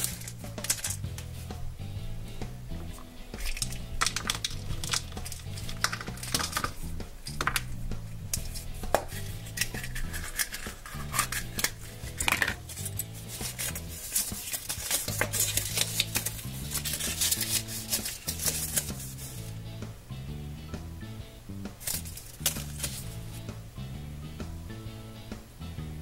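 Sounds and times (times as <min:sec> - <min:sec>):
paper crinkling: 0:00.0 - 0:01.3, 0:02.9 - 0:07.7, 0:08.4 - 0:19.5, 0:21.8 - 0:23.2
background music with bass: 0:00.0 - 0:26.0
plastic capsule clicking: 0:03.4 - 0:12.6.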